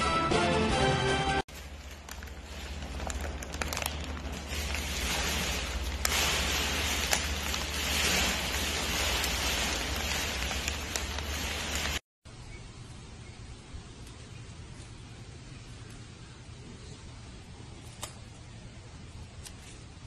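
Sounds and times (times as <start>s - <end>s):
foil bag rustling and crackling: 1.5s - 12.1s.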